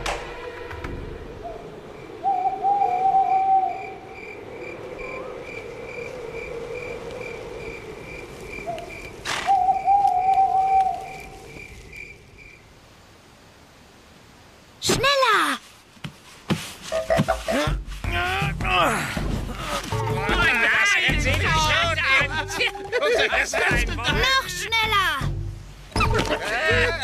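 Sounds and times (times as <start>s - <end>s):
low hum: 0.0s - 12.3s
long wavering animal call: 0.2s - 11.6s
crickets chirping: 0.2s - 14.7s.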